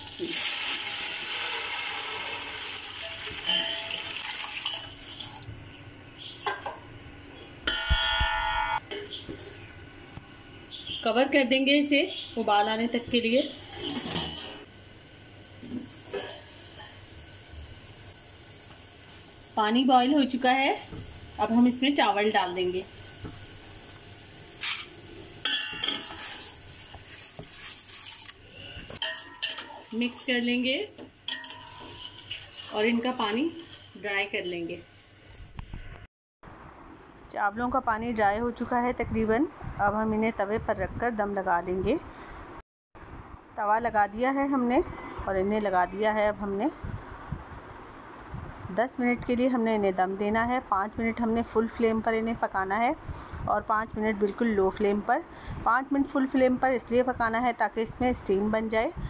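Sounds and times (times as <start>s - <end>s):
water splashing into hot oil: 0.0s - 5.5s
water boiling in a pot: 0.0s - 5.6s, 14.7s - 34.4s
metal pot lid clang: 3.4s - 4.1s, 25.4s - 26.2s, 31.3s - 32.1s.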